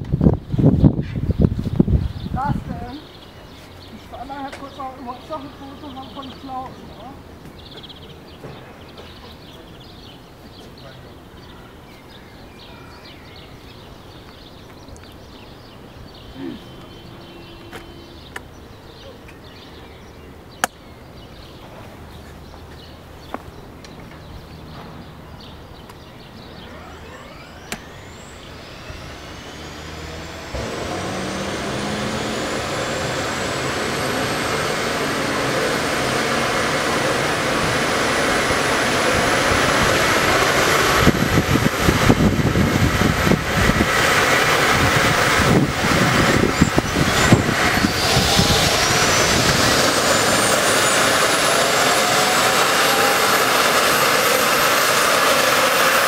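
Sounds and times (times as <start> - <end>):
helicopter turbine whine: 0.0 - 56.0
helicopter rotor turning: 21.9 - 56.0
low rumbling bursts: 24.3 - 55.6.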